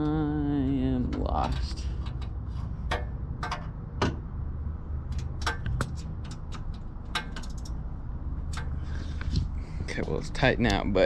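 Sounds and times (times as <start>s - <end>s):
low steady rumble: 0.0s - 11.0s
wrench clicking metallically: 5.1s - 7.8s.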